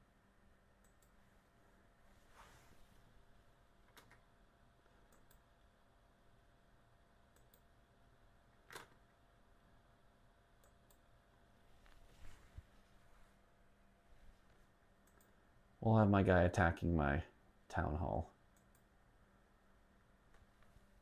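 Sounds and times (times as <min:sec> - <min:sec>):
computer mouse clicks: 0:00.8 - 0:01.2, 0:05.0 - 0:05.5, 0:07.3 - 0:07.7, 0:10.6 - 0:11.0, 0:15.0 - 0:15.4, 0:18.5 - 0:18.9.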